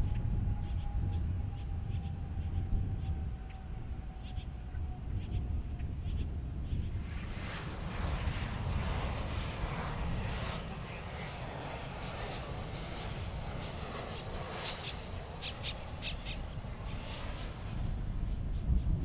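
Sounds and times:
jet engines rumbling: 0:00.0 - 0:19.0.

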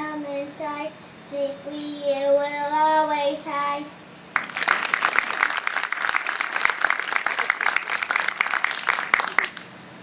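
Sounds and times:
audience applauding: 0:04.4 - 0:09.7.

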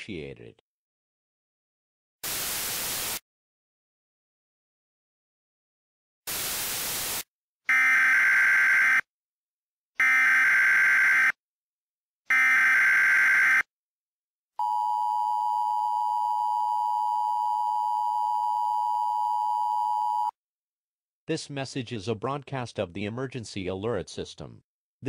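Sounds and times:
static burst: 0:02.2 - 0:03.2, 0:06.3 - 0:07.3.

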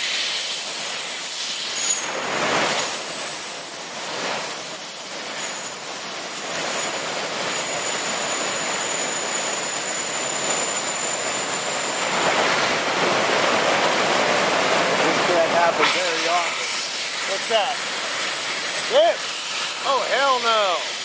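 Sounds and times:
floodwater rushing over spillway: 0:00.0 - 0:21.0
high-pitched whistle: 0:00.2 - 0:02.1, 0:08.7 - 0:12.0, 0:16.8 - 0:21.0.

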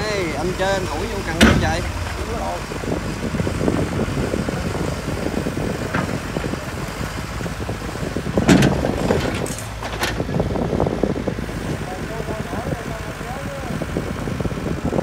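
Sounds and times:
diesel excavator engine running: 0:00.0 - 0:15.0.

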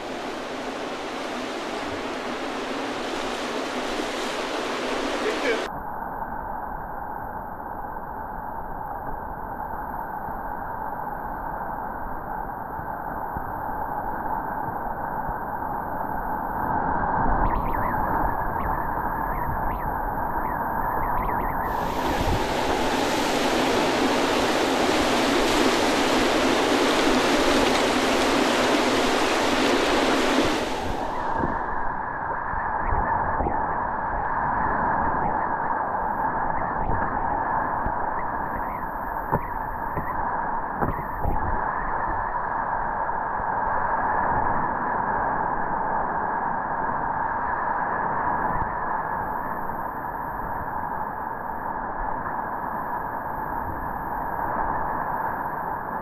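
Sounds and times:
river rapids rushing: 0:00.0 - 0:05.7, 0:21.7 - 0:31.2.

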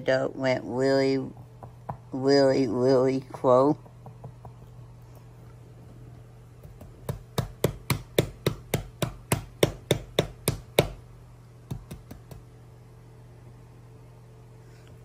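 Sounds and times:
hand knocking on hard surface: 0:01.3 - 0:02.1, 0:03.3 - 0:04.8.

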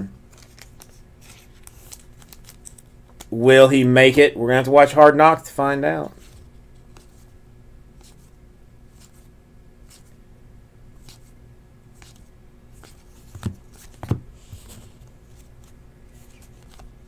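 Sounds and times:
cards sliding with faint clicks: 0:00.3 - 0:03.3, 0:06.2 - 0:07.3, 0:12.0 - 0:17.0.

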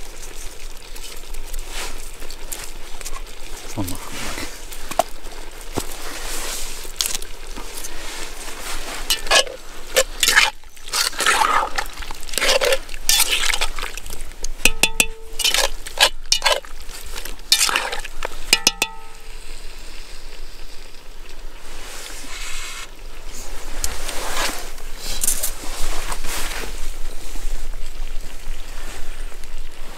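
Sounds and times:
steady hiss: 0:00.0 - 0:29.9
utensil stirring and scraping food: 0:00.1 - 0:19.2
metallic clinks against pot: 0:09.1 - 0:10.2, 0:14.6 - 0:16.6, 0:18.5 - 0:19.2.

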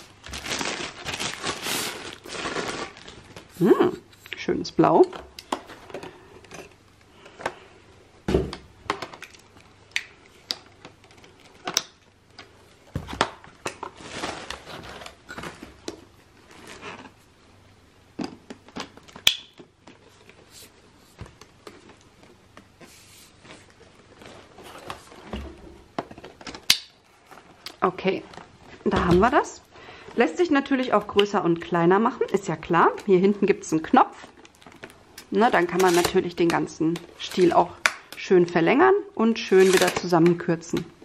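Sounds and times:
rustling: 0:00.0 - 0:04.4, 0:12.4 - 0:17.3.

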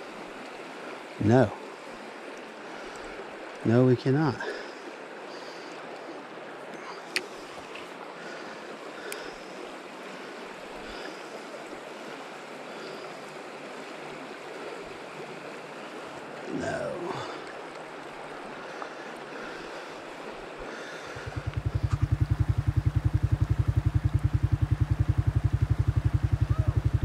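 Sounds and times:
stream flowing over rocks: 0:00.0 - 0:27.0
faint click: 0:06.7 - 0:07.9.

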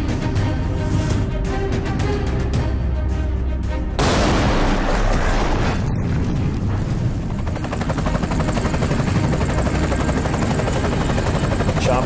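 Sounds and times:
explosion: 0:04.0 - 0:07.2
helicopter rotor blades chopping: 0:06.0 - 0:12.0.

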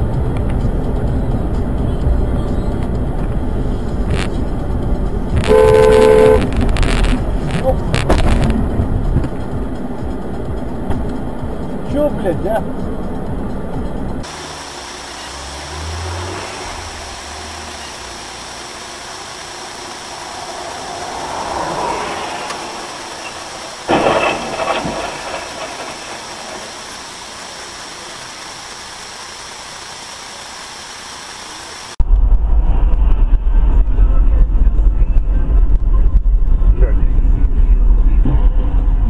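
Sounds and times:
vehicle running: 0:00.0 - 0:39.0
loud bang: 0:22.4 - 0:27.6.

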